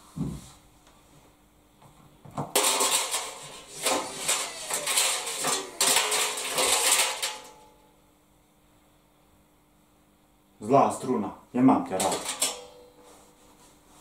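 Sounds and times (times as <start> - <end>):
wire spring clattering on metal drum: 2.6 - 7.8, 11.9 - 13.0.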